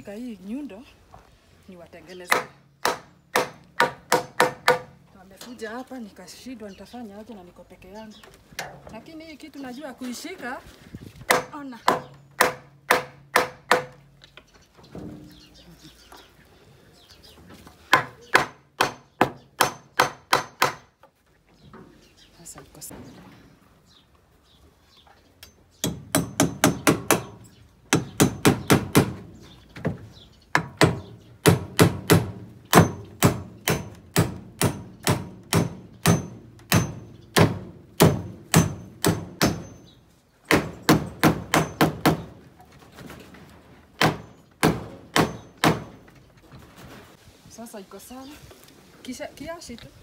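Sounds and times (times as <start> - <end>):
hammer driving nails into wood: 17.9 - 20.9.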